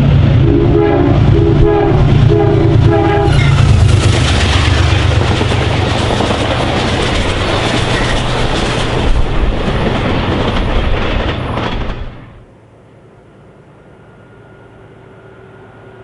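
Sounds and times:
passenger train passing: 0.0 - 16.0
wheels clacking over rail joints: 3.3 - 12.3.

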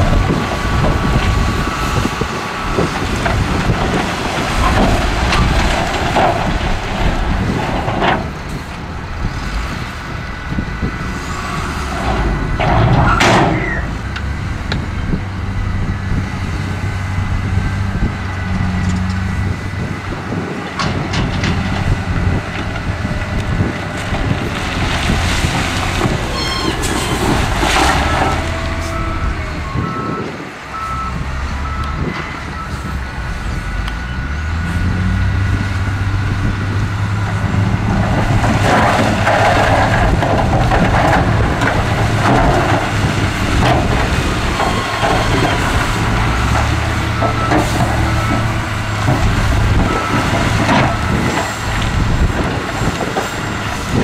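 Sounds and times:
diesel engines running: 0.0 - 54.0
reversing alarm beeps: 26.3 - 26.8, 28.8 - 33.0, 44.6 - 48.5, 49.7 - 50.3.

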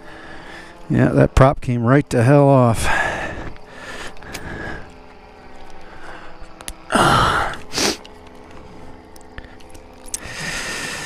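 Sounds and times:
man sighing heavily: 6.9 - 8.0.

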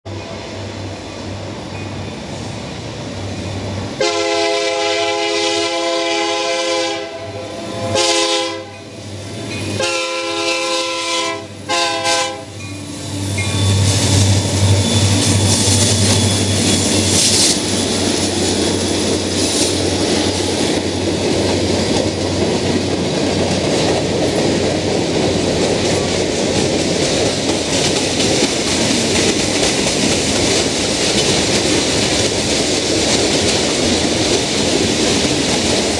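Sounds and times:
diesel locomotives rumbling past: 0.1 - 35.9
train air horn blasts: 4.0 - 8.9, 9.8 - 12.6.

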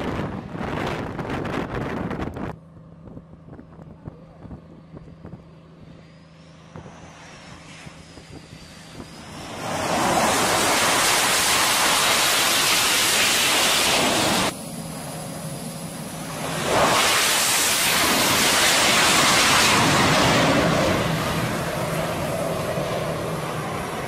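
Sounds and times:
jet engines roaring: 0.0 - 2.6, 4.6 - 24.0
distant jet whine: 0.0 - 24.0
low hum: 0.0 - 24.0
loud rushing jet noise: 5.9 - 24.0.

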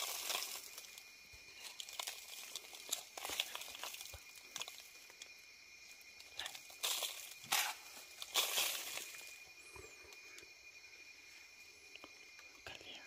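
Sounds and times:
dry leaves rustling and crackling: 0.0 - 9.5
faint high-pitched tone: 5.3 - 13.0.

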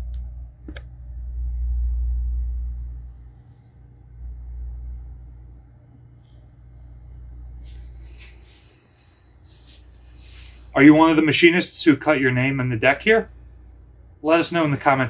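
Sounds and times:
click: 0.0 - 0.9
low rumble: 0.0 - 15.0
steady low hum: 0.0 - 15.0.

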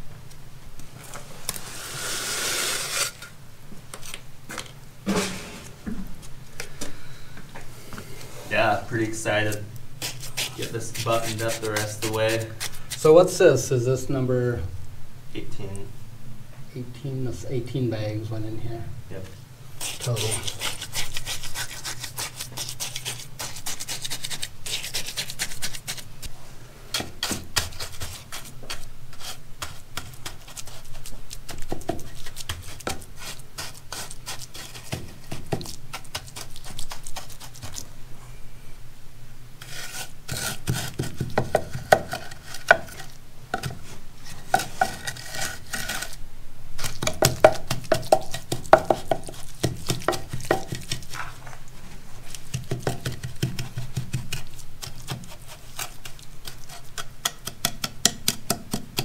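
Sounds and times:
wooden block scraping wet concrete: 1.6 - 3.3.

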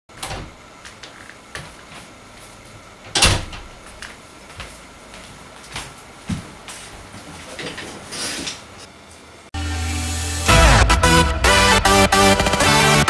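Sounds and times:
door opening and shutting: 0.1 - 1.3, 3.0 - 4.0
footsteps on floor: 0.8 - 2.8, 3.8 - 8.7
door thud: 3.1 - 3.8.

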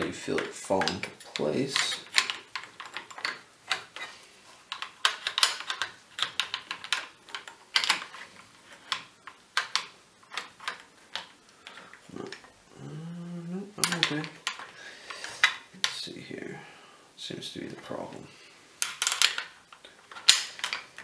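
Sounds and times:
paintball gun parts clicking: 0.1 - 12.5, 13.8 - 16.0, 18.8 - 21.0.

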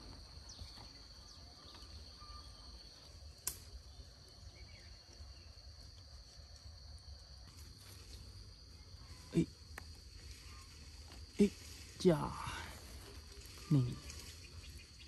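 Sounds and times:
faint outdoor ambience: 0.0 - 15.0
high-pitched insect drone: 6.8 - 15.0.

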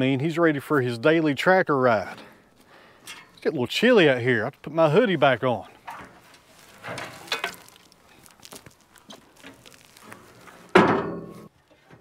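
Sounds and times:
fabric rustling: 6.0 - 10.8.

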